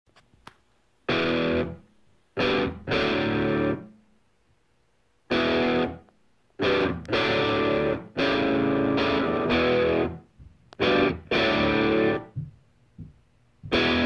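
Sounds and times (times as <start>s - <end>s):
distorted electric guitar riff: 1.1s - 4.0s, 5.3s - 12.5s, 13.6s - 14.0s.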